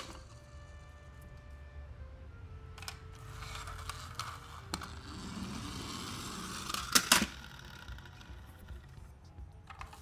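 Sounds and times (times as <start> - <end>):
toy car rolling on ribbed plastic: 2.8 - 8.9.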